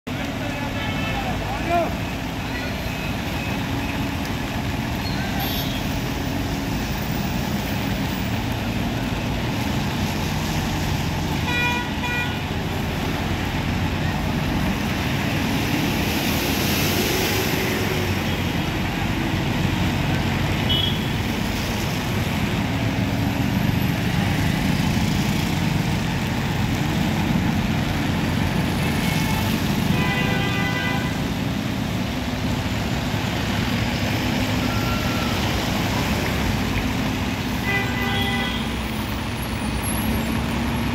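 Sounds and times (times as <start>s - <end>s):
truck diesel engines running: 0.1s - 40.9s
truck horn: 11.5s - 12.4s, 20.7s - 21.1s, 29.0s - 31.2s, 37.6s - 38.8s.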